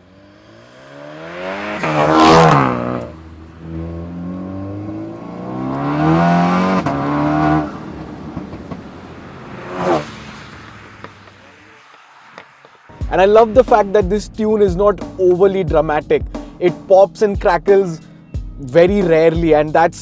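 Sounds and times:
car engine accelerating hard: 0:00.0 - 0:12.8.

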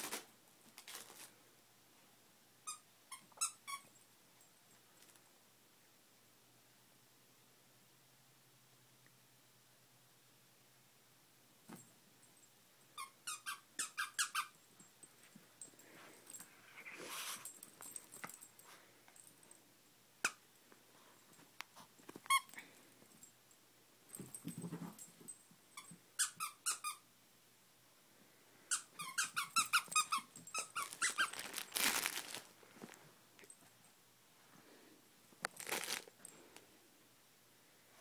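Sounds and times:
dog toy squeaker squeaking: 0:02.7 - 0:03.9, 0:13.0 - 0:14.6, 0:25.8 - 0:27.0, 0:28.7 - 0:31.5
plush rustling: 0:30.8 - 0:33.0, 0:35.6 - 0:36.1.

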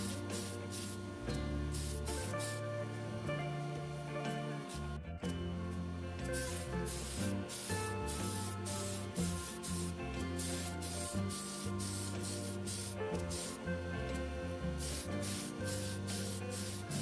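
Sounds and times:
spray paint hissing bursts: 0:00.0 - 0:01.0, 0:01.7 - 0:02.6, 0:06.3 - 0:13.6, 0:14.8 - 0:17.0
background music: 0:00.0 - 0:17.0.

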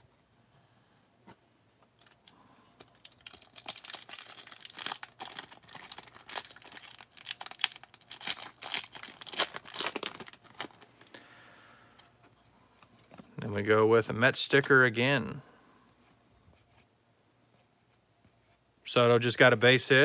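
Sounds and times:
foil wrapper torn and crinkled: 0:02.0 - 0:10.9.

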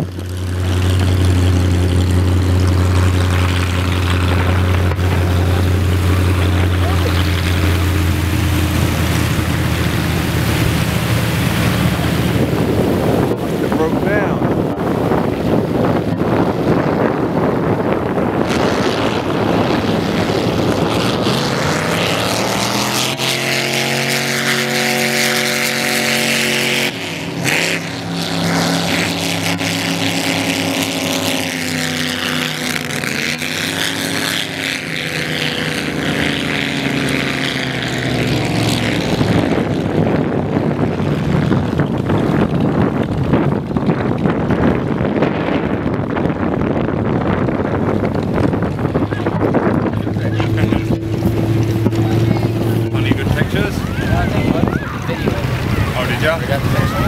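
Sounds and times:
motorboat engines passing: 0:00.0 - 0:57.0
wind noise on microphone: 0:00.0 - 0:57.0.

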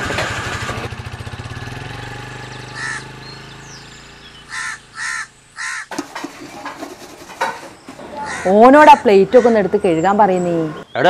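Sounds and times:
motorcycle engine running: 0:00.0 - 0:06.9
crow cawing: 0:02.8 - 0:03.1, 0:04.5 - 0:05.9, 0:08.1 - 0:09.8.

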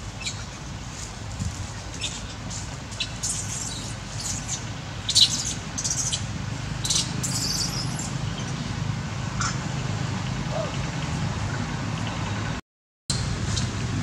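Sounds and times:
baby monkey squealing: 0:06.8 - 0:08.1.

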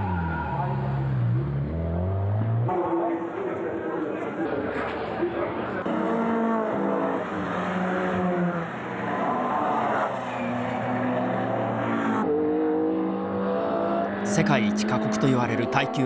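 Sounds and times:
racing car engines revving: 0:00.0 - 0:16.0.

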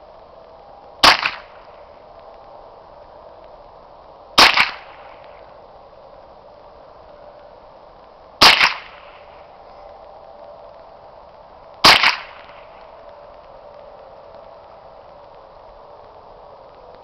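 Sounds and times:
rifle shots: 0:01.0 - 0:01.6, 0:04.4 - 0:05.2, 0:08.4 - 0:09.3, 0:11.8 - 0:12.8.

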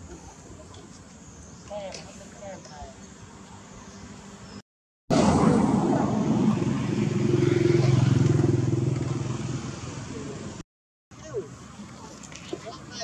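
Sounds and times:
motorcycle engine running: 0:06.4 - 0:10.5.

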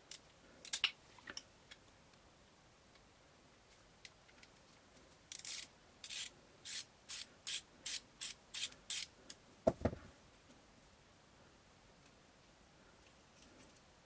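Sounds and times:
dull knocks: 0:09.7 - 0:10.0.

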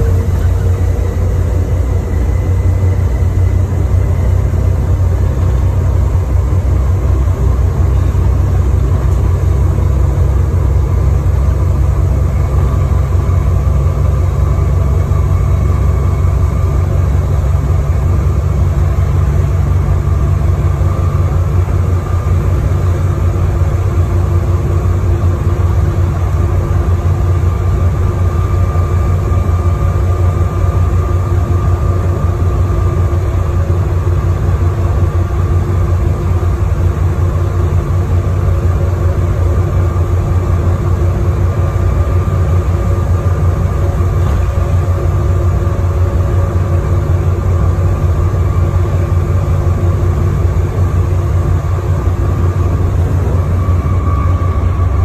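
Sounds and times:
bus engine rumble: 0:00.0 - 0:55.0
faint high whine: 0:00.0 - 0:55.0.

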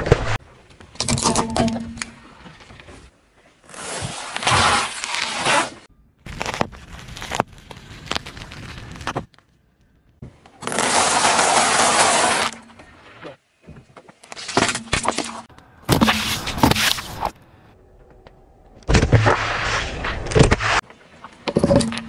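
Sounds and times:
juice pouches bursting crackles: 0:06.3 - 0:09.4.

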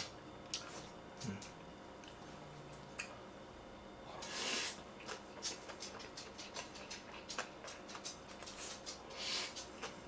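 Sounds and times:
person slurping noodles: 0:04.2 - 0:04.8
wet chewing: 0:05.0 - 0:10.0.

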